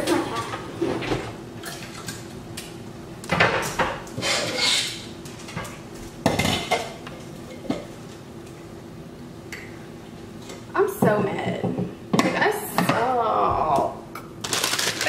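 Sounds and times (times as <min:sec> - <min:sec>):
pots and pans clattering: 0:03.3 - 0:07.9.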